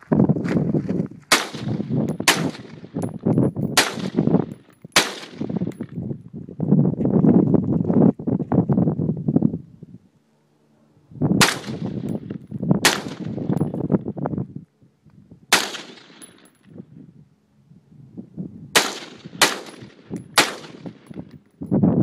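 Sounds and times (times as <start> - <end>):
rifle shots: 1.3 - 5.8, 11.4 - 13.6, 15.5 - 16.5, 18.8 - 21.2.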